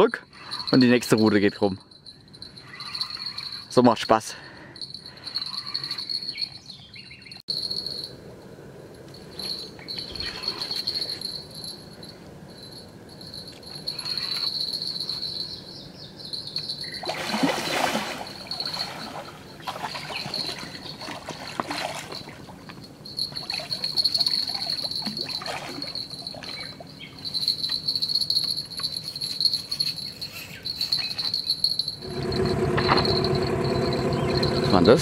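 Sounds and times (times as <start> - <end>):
night insects chirring: 0.0 - 35.0
fish splashing in shallows: 17.0 - 22.5, 23.4 - 26.1.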